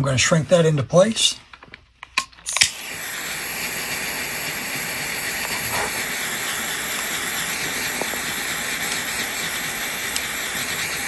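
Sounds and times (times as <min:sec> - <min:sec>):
heat tool blowing hiss: 0:02.5 - 0:11.0.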